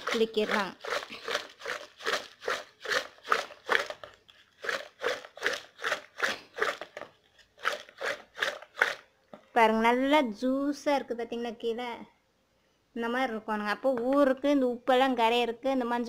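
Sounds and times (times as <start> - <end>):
wet rattle of shaken tub: 0.0 - 9.0.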